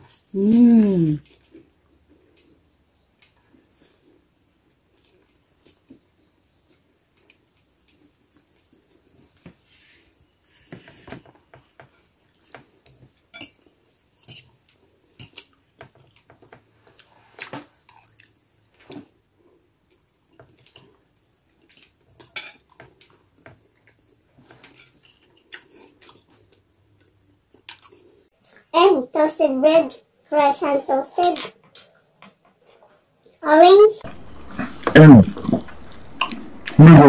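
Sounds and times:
person chewing food: 11.4 - 28.6, 34.0 - 36.9.

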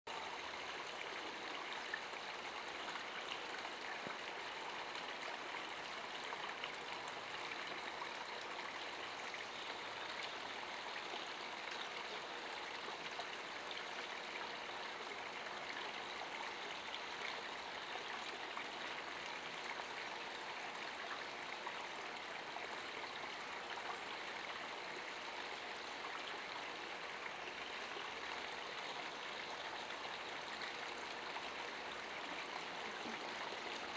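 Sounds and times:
running water rushing: 0.1 - 33.9.

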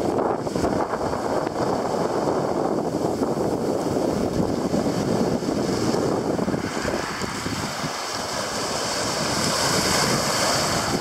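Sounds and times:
small waves washing on beach: 0.0 - 11.0
wind buffeting microphone: 0.0 - 11.0.

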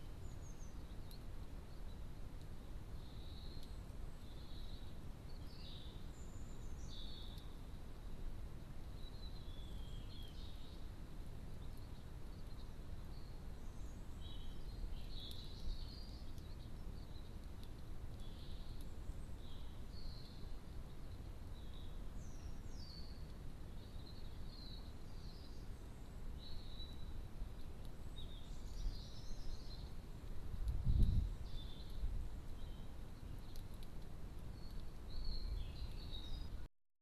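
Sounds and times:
songbirds chirping: 0.0 - 36.7.

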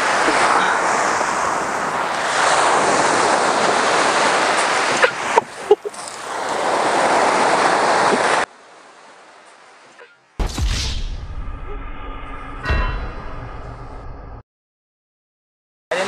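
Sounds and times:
wind buffeting microphone: 0.0 - 8.5
waves washing on gravel shore: 0.0 - 9.9.

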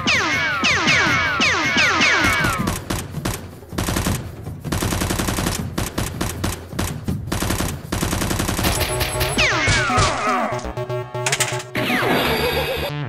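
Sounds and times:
machine-gun fire: 1.9 - 9.9.

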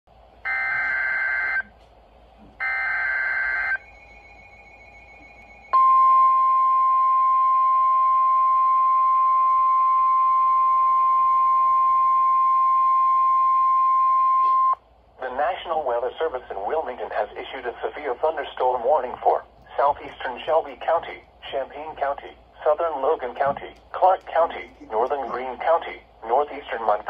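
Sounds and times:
single-pitch warning alarm tone: 0.4 - 1.7, 2.6 - 14.8.

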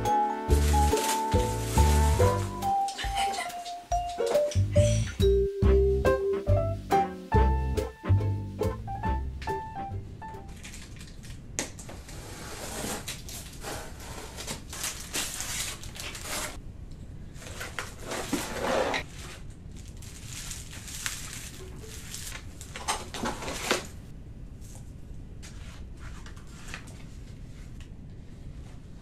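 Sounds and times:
bubble wrap crinkling: 0.0 - 3.8, 10.4 - 16.6, 17.4 - 24.0.

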